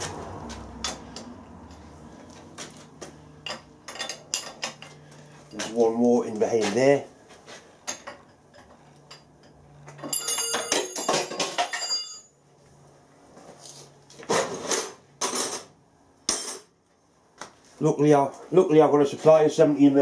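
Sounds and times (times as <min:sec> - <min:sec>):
spanner clinking on metal nuts: 0:03.4 - 0:05.8, 0:07.9 - 0:12.3.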